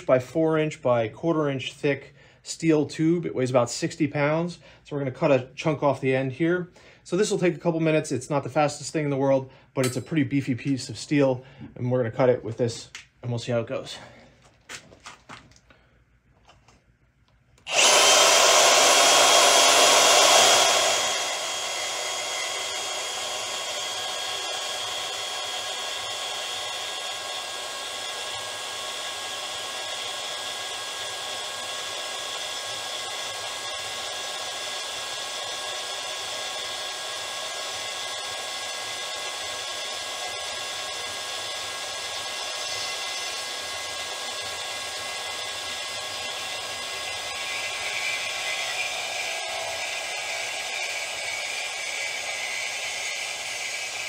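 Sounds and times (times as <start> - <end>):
bandsaw cutting steel tube: 17.7 - 54.0.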